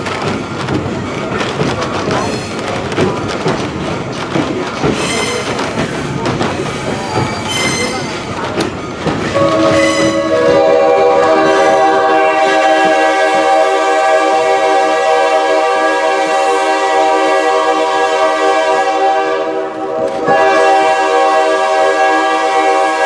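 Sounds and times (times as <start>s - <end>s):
train rumbling along rails: 0.0s - 23.0s
locomotive air horn chord: 9.3s - 23.0s.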